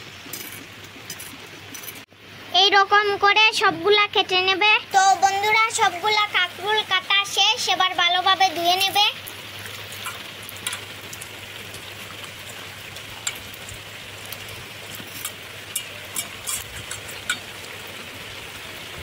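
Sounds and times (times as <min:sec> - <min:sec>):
small splashes and clinks: 0:00.0 - 0:02.1, 0:08.5 - 0:18.4
steady rain hissing: 0:00.0 - 0:19.0.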